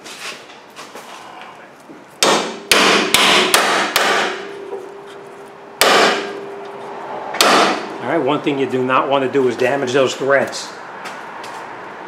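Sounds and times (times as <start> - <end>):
faint metallic ringing: 4.4 - 8.0.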